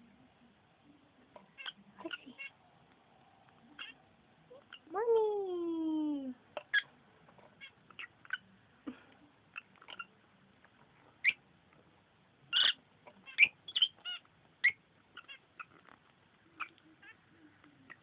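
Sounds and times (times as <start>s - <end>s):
lovebirds chirping and squeaking: 1.4s - 2.6s, 3.7s - 4.9s, 6.6s - 8.5s, 9.5s - 10.2s, 11.2s - 11.4s, 12.5s - 17.2s, 17.8s - 18.0s.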